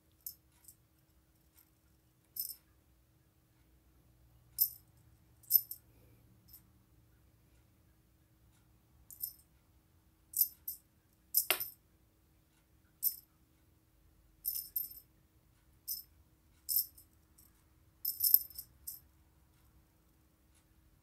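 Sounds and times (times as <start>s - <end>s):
small jingle bell jingling: 2.4s - 2.6s, 4.6s - 4.8s, 5.4s - 5.8s, 9.1s - 9.4s, 10.4s - 10.8s, 11.4s - 11.8s, 13.0s - 13.2s, 14.4s - 15.0s, 15.9s - 16.1s, 16.7s - 17.1s, 18.0s - 19.0s.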